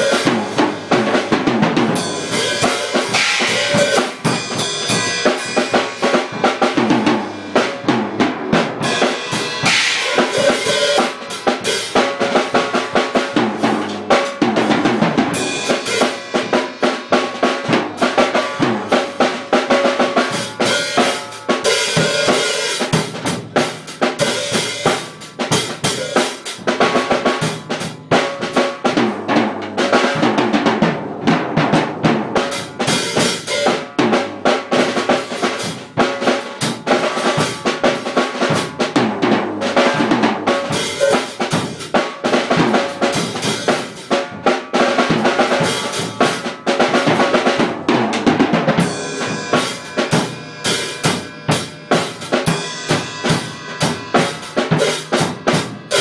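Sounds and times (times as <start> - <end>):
drum kit playing: 0.0 - 56.0
cymbals ringing: 1.9 - 7.8, 8.8 - 12.0, 15.4 - 17.2, 20.2 - 23.1, 48.8 - 56.0.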